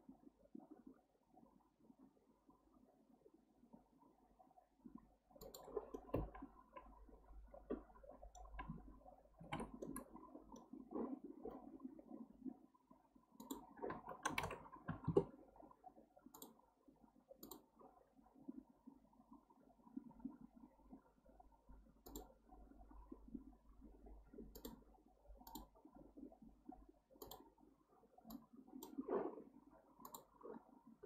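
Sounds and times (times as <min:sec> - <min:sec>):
mouse and keyboard clicks: 0:05.4 - 0:06.9, 0:09.4 - 0:10.7, 0:13.4 - 0:15.3, 0:17.4 - 0:17.6, 0:22.0 - 0:22.3, 0:27.2 - 0:27.5, 0:30.0 - 0:30.3.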